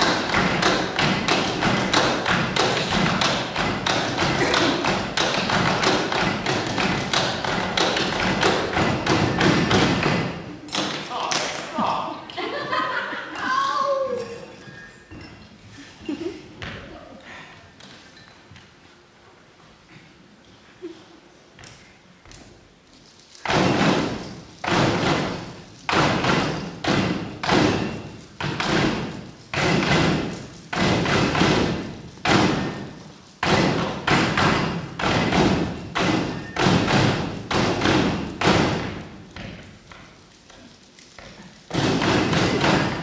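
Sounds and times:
drumming on tables: 0.0 - 11.6, 23.4 - 43.0
hands clapping: 10.8 - 11.7.

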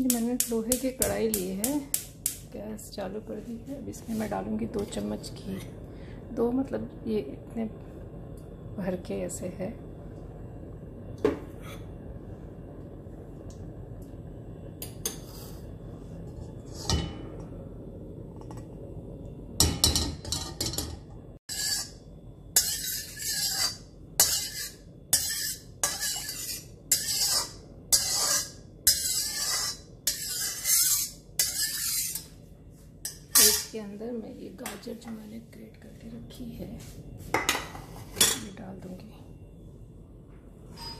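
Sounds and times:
low steady hum: 0.0 - 40.9
steel spatula scraping iron pan: 15.0 - 15.6, 16.3 - 17.2, 21.5 - 32.4, 33.0 - 33.8.

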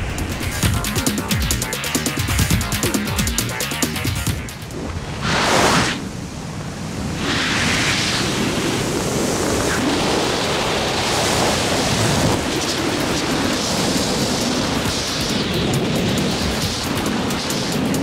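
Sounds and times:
wind rushing over microphone: 4.6 - 18.0.

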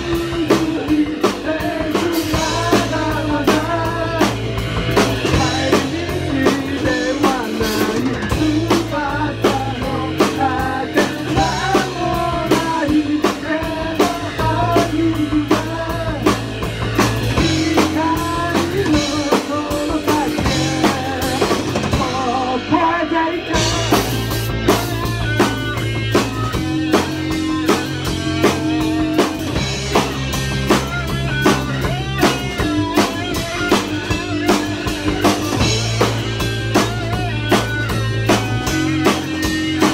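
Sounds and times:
lead vocal singing: 0.0 - 25.1
bass guitar: 0.0 - 39.9
drum kit: 0.0 - 39.9
electric guitar: 0.0 - 39.9.

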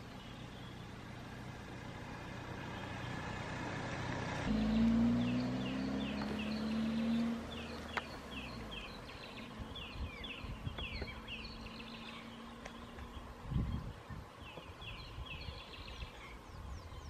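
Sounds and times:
vehicle engine humming: 0.0 - 16.6
small birds chirping: 0.0 - 17.0.

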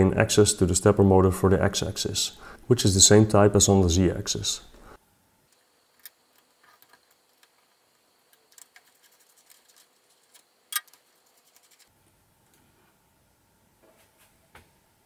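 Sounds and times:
metal parts clicking and tapping: 5.9 - 11.9.

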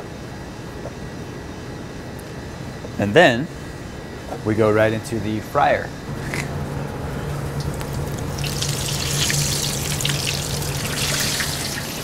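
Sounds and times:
steady low hum: 0.0 - 12.0
oil sizzling and bubbling: 6.2 - 12.0.

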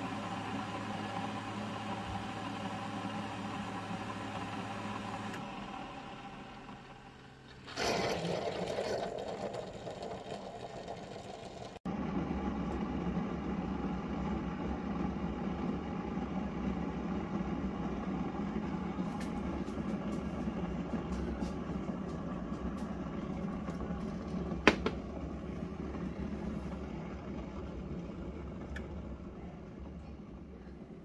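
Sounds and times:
brewer hissing and sputtering: 0.0 - 31.0
coffee brewer humming: 0.0 - 31.0
low machine hum: 9.6 - 31.0.

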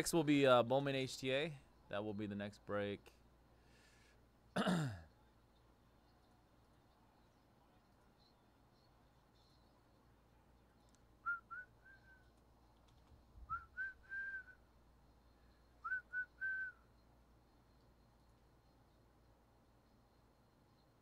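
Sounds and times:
person whistling a tune: 11.2 - 12.3, 13.5 - 14.6, 15.8 - 16.8.

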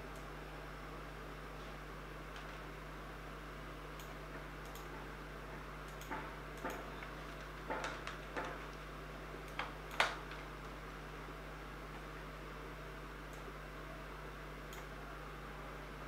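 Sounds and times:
low electrical hum: 0.0 - 16.0.

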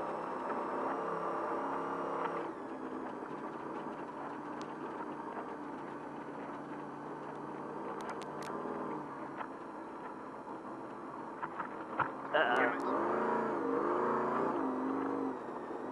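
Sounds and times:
truck engine running at low revs: 0.0 - 15.9.

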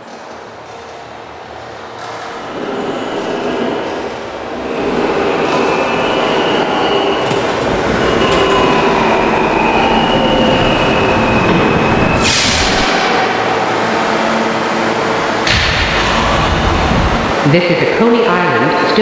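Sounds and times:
subway train rumble: 0.0 - 19.0
wheel squeal: 2.5 - 13.4.

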